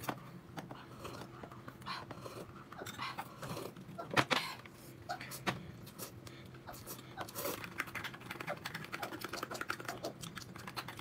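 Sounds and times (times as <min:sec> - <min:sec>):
person chewing: 0:05.8 - 0:11.0
small mouth clicks: 0:08.4 - 0:11.0.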